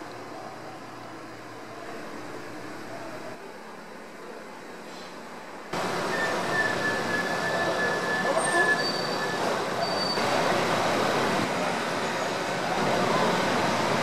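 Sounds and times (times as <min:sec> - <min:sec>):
traffic on wet road: 0:05.7 - 0:14.0
high squeal: 0:05.9 - 0:10.4.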